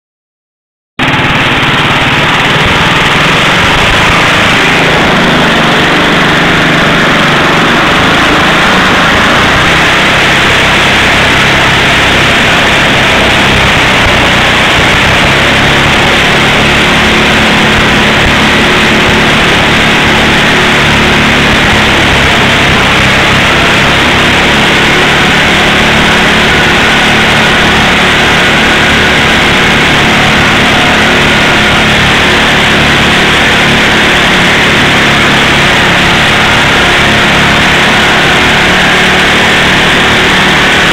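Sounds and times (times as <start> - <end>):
small engine running loud: 1.0 - 40.9
tire spinning on asphalt: 1.0 - 40.9.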